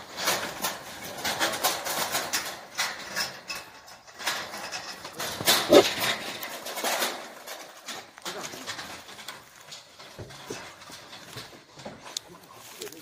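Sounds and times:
boars rattling wire mesh cage: 0.0 - 13.0
boar call: 5.7 - 5.9.

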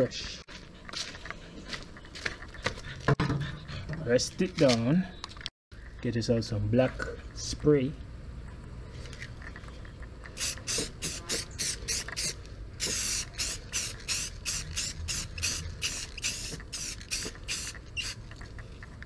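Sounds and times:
spray paint can hissing: 10.4 - 18.3.

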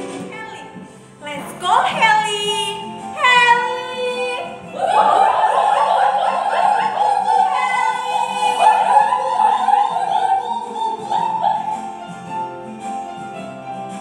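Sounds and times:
keyboard accompaniment: 0.0 - 14.0
women singing children's song: 1.2 - 12.0.

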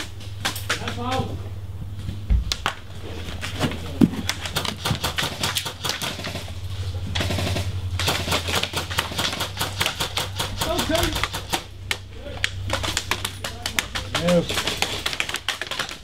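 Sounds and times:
airsoft guns firing: 4.4 - 6.6, 7.2 - 11.7, 12.6 - 16.0.

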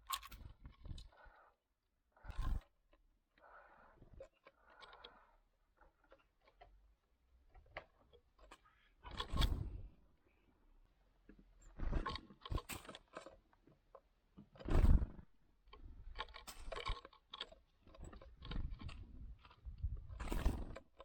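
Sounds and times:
wing flutter: 9.1 - 9.9, 14.6 - 15.3, 17.9 - 21.0.

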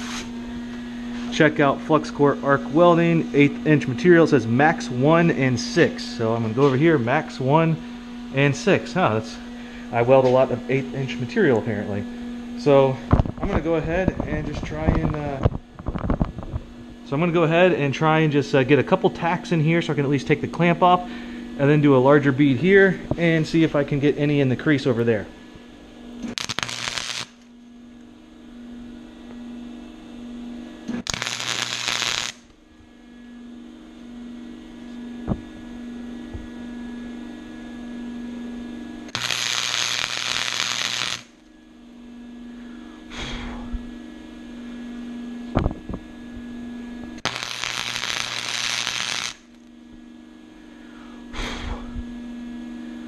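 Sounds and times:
welder hum: 0.0 - 53.0
welding arc crackling: 26.2 - 27.5, 30.9 - 32.6, 39.1 - 41.5, 47.2 - 49.7.

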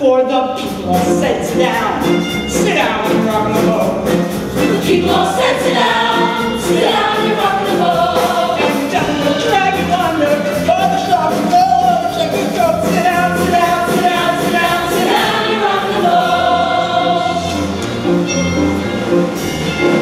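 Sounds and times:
instrumental accompaniment: 0.5 - 20.0
mixed chorus singing: 4.6 - 9.9, 13.4 - 17.9.

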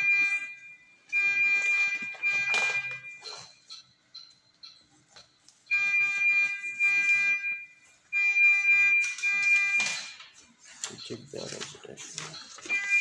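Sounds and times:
electronic alarm tones: 0.0 - 10.3, 12.2 - 13.0.

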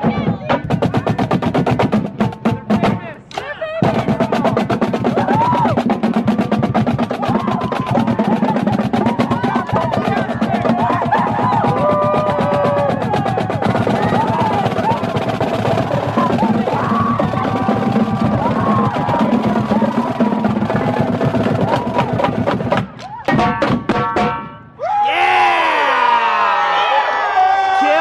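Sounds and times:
marching snare drums: 0.0 - 3.2, 3.8 - 24.6
crowd cheering and whooping: 5.1 - 5.8, 7.1 - 23.4, 24.8 - 28.0.

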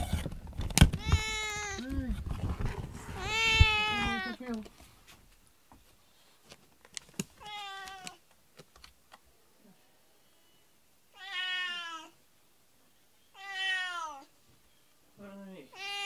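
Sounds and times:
cat meowing: 1.0 - 1.9, 3.1 - 4.4, 7.4 - 8.2, 11.1 - 12.2, 13.3 - 14.3, 15.7 - 16.0.

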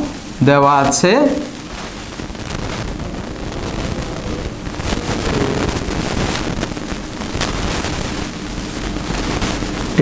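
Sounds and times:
low background rumble: 1.6 - 9.2.

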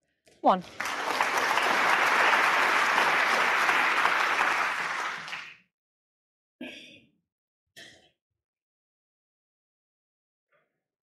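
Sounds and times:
audience applauding: 0.6 - 5.6.

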